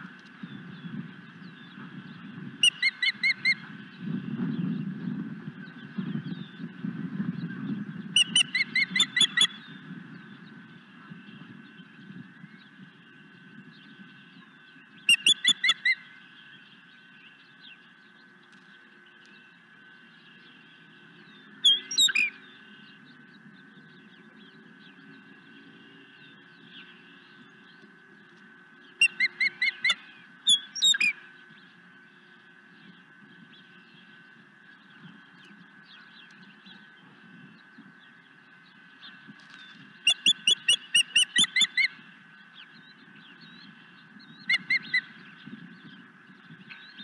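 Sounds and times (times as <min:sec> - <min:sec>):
faint hum: 0:00.0 - 0:47.0
osprey chirping: 0:02.6 - 0:03.7, 0:08.2 - 0:09.8, 0:15.0 - 0:16.1, 0:21.3 - 0:23.3, 0:28.9 - 0:31.9, 0:32.6 - 0:45.6.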